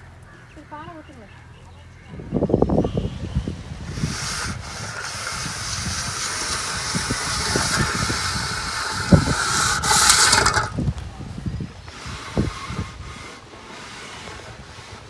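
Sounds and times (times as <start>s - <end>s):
straightedge scraping plaster: 3.9s - 10.8s, 11.9s - 15.0s.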